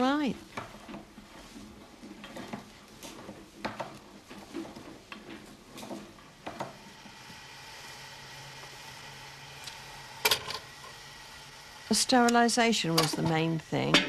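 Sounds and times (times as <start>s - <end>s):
steady hum: 6.5s - 14.0s.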